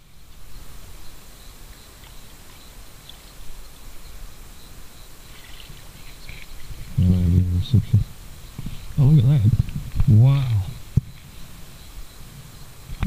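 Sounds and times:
small birds chirping: 0.0s - 13.0s
low outdoor rumble: 2.8s - 13.0s.

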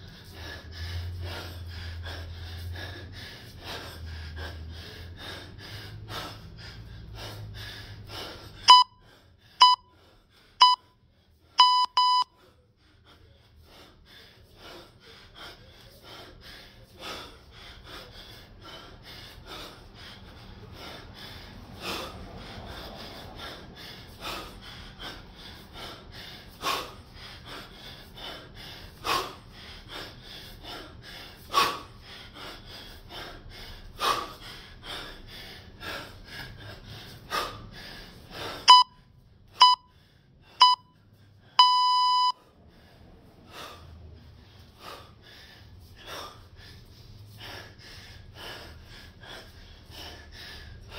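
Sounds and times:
hard rhythmic breathing: 0.0s - 50.9s
timer beeps: 8.7s - 9.0s, 9.6s - 9.9s, 10.6s - 11.0s, 11.6s - 12.3s, 38.7s - 39.0s, 39.6s - 39.9s, 40.6s - 41.0s, 41.6s - 42.4s.

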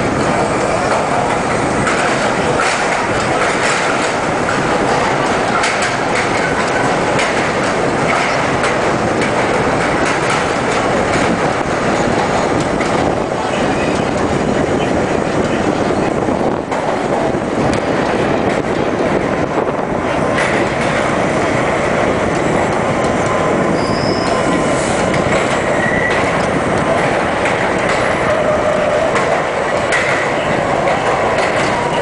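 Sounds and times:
subway train wheels rumbling: 0.0s - 32.0s
high wheel squeals: 23.7s - 25.0s, 25.7s - 26.3s, 28.2s - 29.2s.

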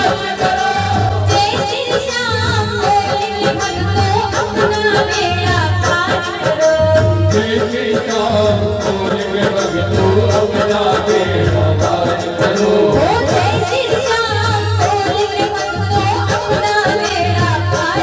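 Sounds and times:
woman singing: 0.0s - 7.8s, 12.9s - 18.0s.

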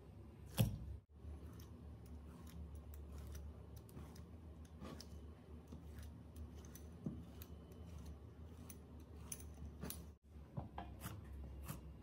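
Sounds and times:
pizza cutter rolling through slime: 1.1s - 10.2s.

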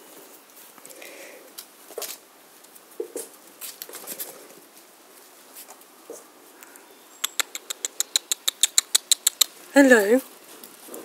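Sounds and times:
puppy claws pattering on concrete: 0.5s - 11.0s
rapid sharp clicks: 7.2s - 9.6s.

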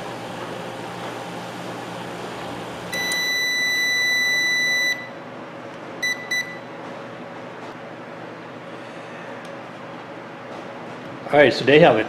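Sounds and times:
microwave oven humming: 0.0s - 12.0s
microwave beeps: 2.9s - 5.2s, 6.0s - 6.8s.

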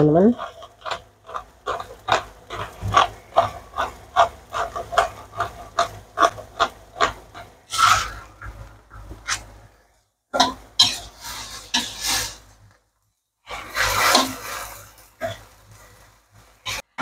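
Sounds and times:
louder scrape: 7.7s - 9.5s, 10.8s - 12.6s, 13.5s - 16.0s.

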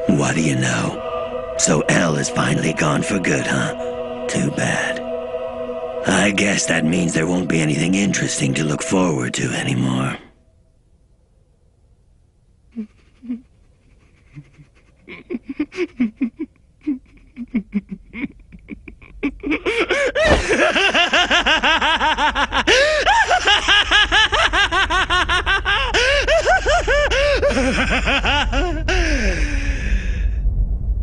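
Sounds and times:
low rumble: 0.0s - 31.0s
man laughing: 12.8s - 29.8s.

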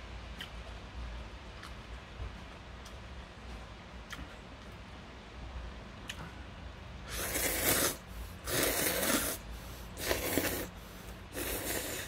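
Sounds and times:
person slurping noodles: 7.1s - 12.0s.

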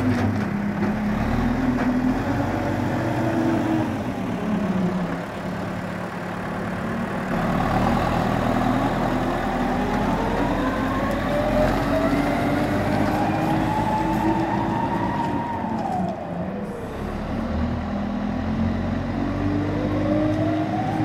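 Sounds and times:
diesel engine running: 0.0s - 21.0s.

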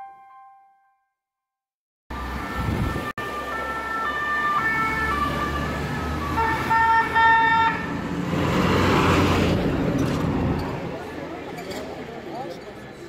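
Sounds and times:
two-tone emergency sirens: 2.1s - 8.0s
low traffic rumble: 2.1s - 13.0s.

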